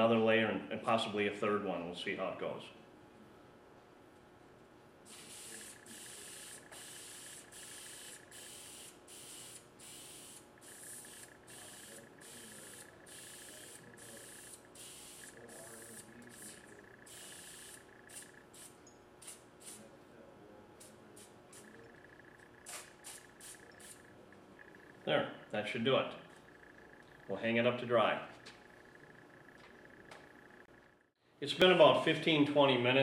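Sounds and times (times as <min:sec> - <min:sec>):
aerosol sprayer hissing bursts: 0:05.1 - 0:19.8.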